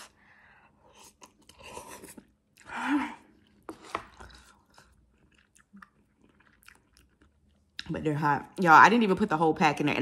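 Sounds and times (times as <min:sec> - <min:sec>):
person chewing noodles: 0:00.0 - 0:07.8.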